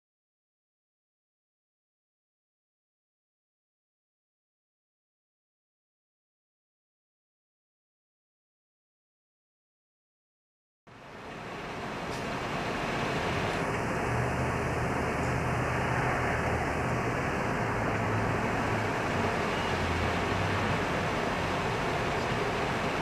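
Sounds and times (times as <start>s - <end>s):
low droning hum: 10.9s - 23.0s
steady background hiss: 10.9s - 23.0s.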